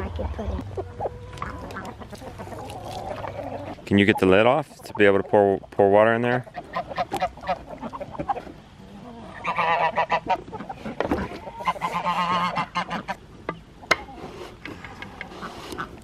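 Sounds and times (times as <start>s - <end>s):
goose honking: 6.2s - 13.2s.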